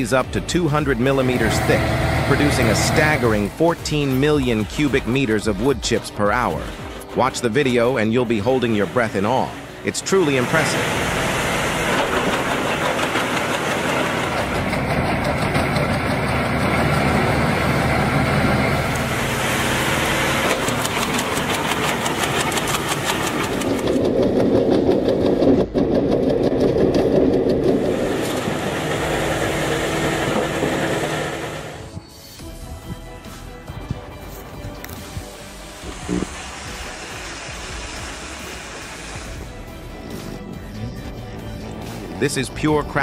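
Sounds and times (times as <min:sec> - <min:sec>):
wood chipper running: 0:00.6 - 0:04.4, 0:06.4 - 0:31.9, 0:34.3 - 0:43.0.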